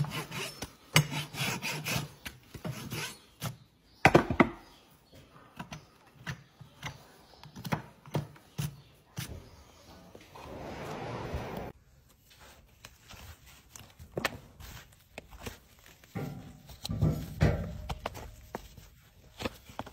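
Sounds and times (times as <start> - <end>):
rasp strokes on hoof: 0.0 - 3.7.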